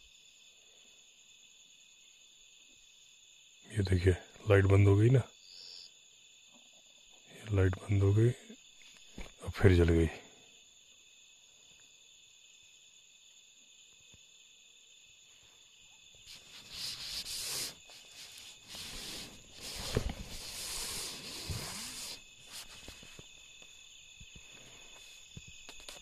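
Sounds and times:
night insects droning: 0.0 - 26.0
rustling and rubbing: 16.2 - 23.4.

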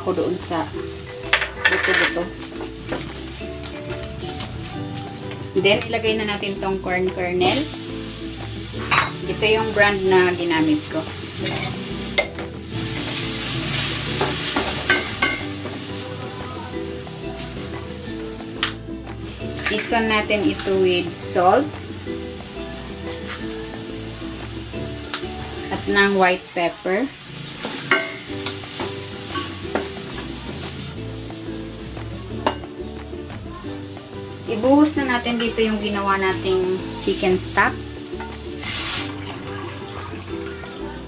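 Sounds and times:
food sizzling in hot oil: 0.0 - 41.0.

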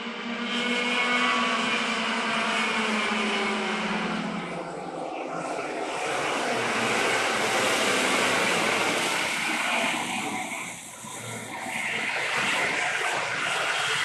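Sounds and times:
kart engine running: 0.0 - 14.0
steady rushing noise: 3.2 - 14.0.

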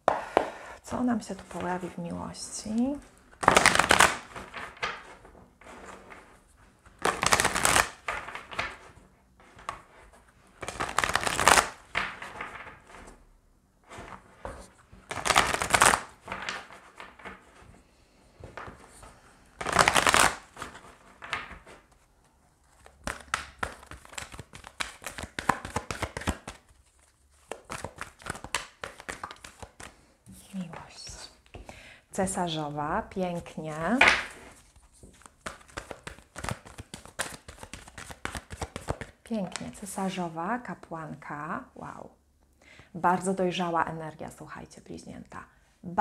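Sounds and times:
cards rustling while shuffled: 2.6 - 13.2, 13.9 - 17.8, 18.4 - 31.7, 33.4 - 39.8.

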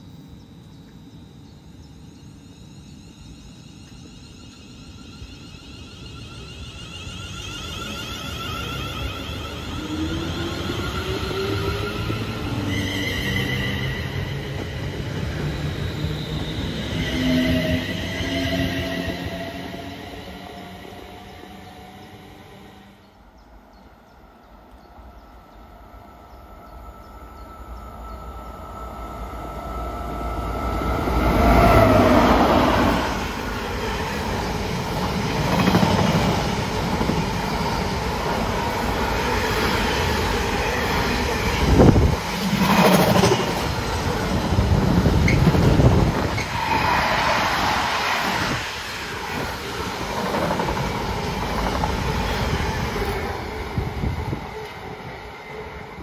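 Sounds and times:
electric locomotives passing: 0.0 - 56.0.

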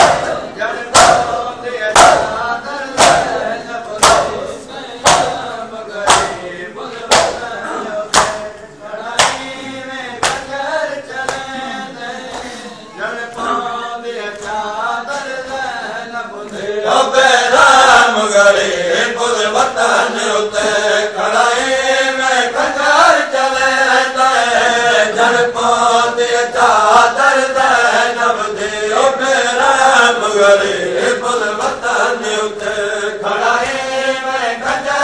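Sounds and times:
men chanting in unison: 0.0 - 35.0
hands slapping chests: 1.0 - 1.3, 3.0 - 3.4, 4.0 - 4.4, 5.0 - 5.4, 6.1 - 6.4, 7.1 - 7.5, 8.1 - 8.5, 9.2 - 9.5, 10.2 - 10.5, 11.2 - 11.5.

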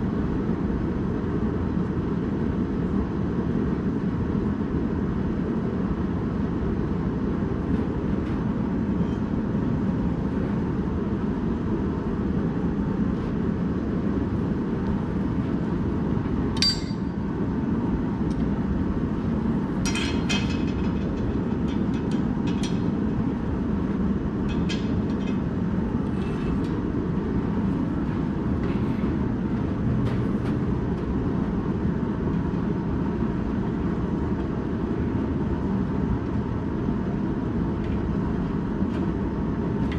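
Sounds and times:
gas forge burning: 0.0 - 39.9
metal clinks: 16.6 - 17.1.

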